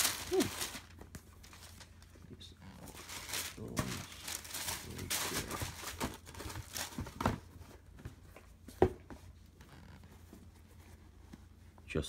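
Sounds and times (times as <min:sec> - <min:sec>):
tissue paper crinkling: 0:00.0 - 0:02.2, 0:02.8 - 0:07.2.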